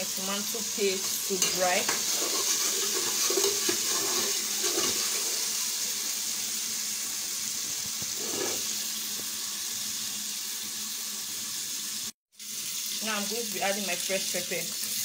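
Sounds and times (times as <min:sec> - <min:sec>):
paste sizzling in oil: 0:00.0 - 0:15.0
spoon scraping a pot: 0:01.0 - 0:05.5, 0:08.0 - 0:08.7.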